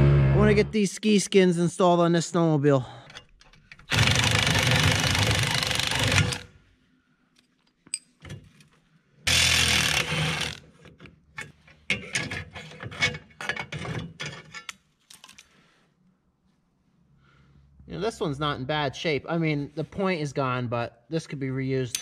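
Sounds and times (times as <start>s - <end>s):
cordless drill running: 3.9s - 6.4s, 9.3s - 10.6s.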